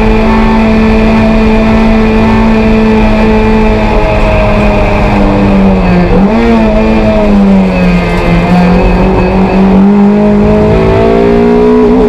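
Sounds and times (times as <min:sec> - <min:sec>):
race car engine at high revs: 0:00.0 - 0:12.0.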